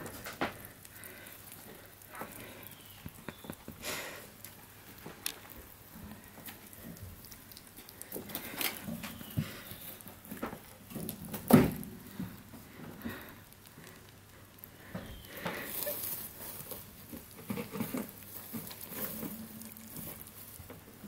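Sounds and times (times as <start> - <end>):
rabbits shuffling in wire cage: 14.9 - 21.0.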